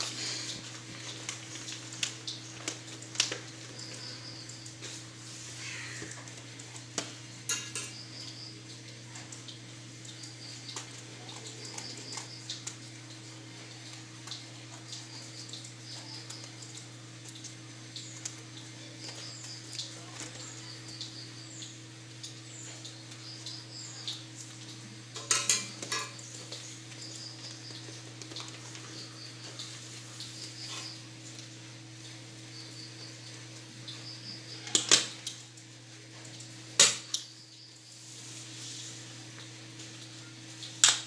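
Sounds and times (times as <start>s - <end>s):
paper rustling: 0.0s - 3.8s.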